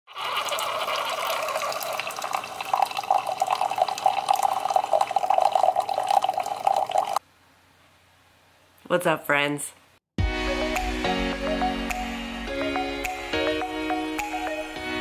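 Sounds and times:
coffee trickling into a mug: 0.1s - 7.2s.

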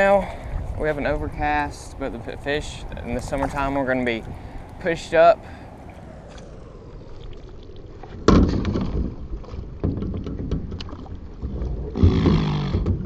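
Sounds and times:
paddle splashing and dripping: 0.0s - 1.0s, 2.8s - 13.0s
paddle clicks and knocks: 8.2s - 13.0s.

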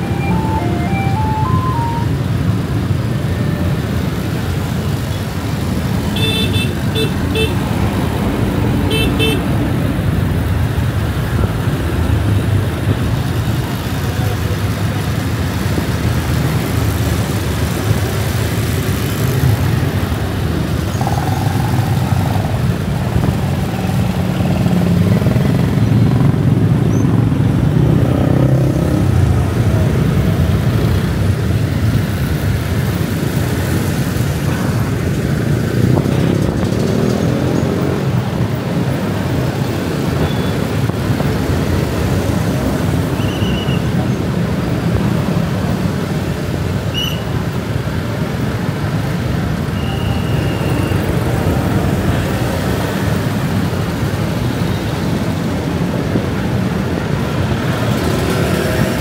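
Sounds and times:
city traffic: 0.0s - 59.0s.

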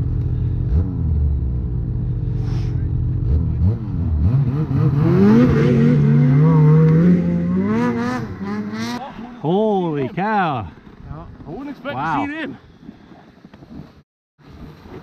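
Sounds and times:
snowmobile engine revving: 2.2s - 12.6s.

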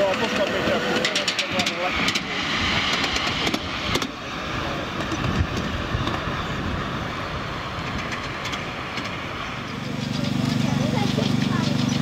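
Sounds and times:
miniature train wheels rumbling: 0.0s - 4.2s, 7.8s - 12.0s.

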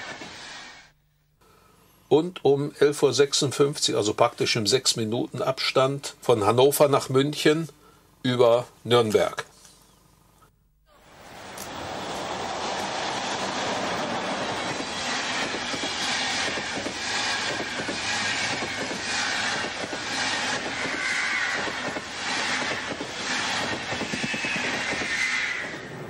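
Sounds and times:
train wheels clattering on rail joints: 11.6s - 25.8s
high wheel squeal: 14.0s - 26.0s.

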